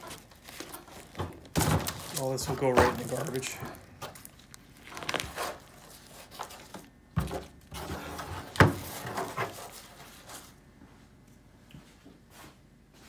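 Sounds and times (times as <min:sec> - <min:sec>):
cardboard tearing and crumpling: 0:00.0 - 0:10.3
cardboard rustling: 0:00.0 - 0:10.6.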